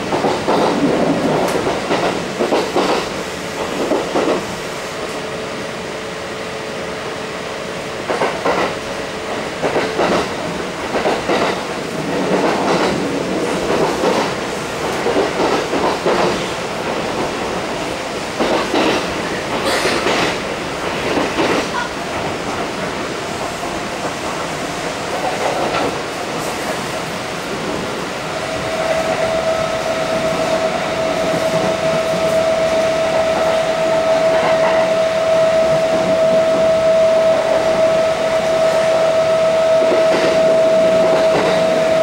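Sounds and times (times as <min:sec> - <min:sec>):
train wheels clacking over rail joints: 0:00.0 - 0:04.5, 0:08.1 - 0:17.7, 0:18.4 - 0:27.0, 0:39.8 - 0:42.0
train running rumble: 0:00.0 - 0:42.0.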